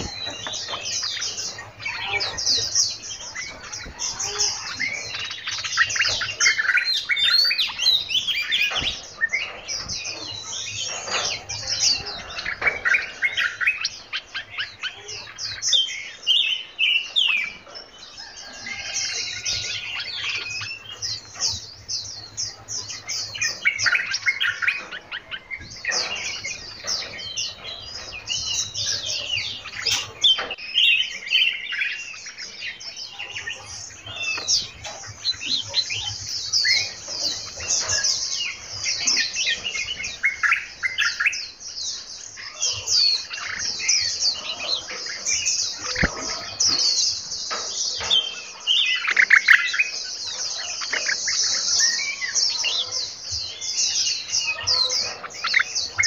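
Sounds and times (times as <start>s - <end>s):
songbirds chirping and singing: 0.0s - 56.0s.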